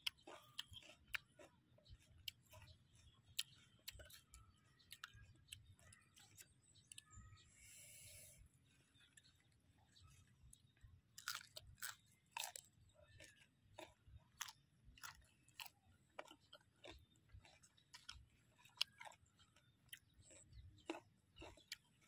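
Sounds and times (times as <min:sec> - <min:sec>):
crunching and chewing raw produce: 0:00.0 - 0:22.0.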